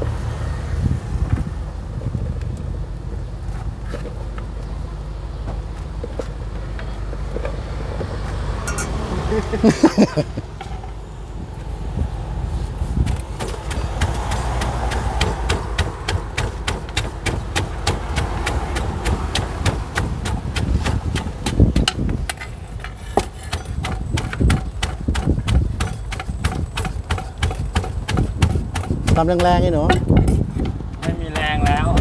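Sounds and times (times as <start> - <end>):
pestle pounding in a mortar: 13.1 - 32.0.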